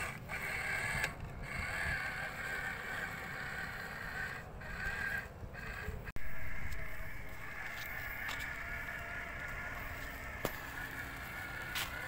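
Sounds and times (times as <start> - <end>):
toy truck motor whining: 0.0 - 12.0.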